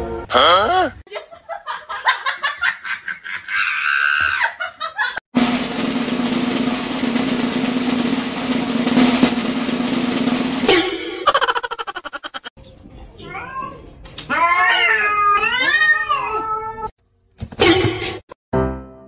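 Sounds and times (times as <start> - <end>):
snare drum roll: 5.4 - 10.7.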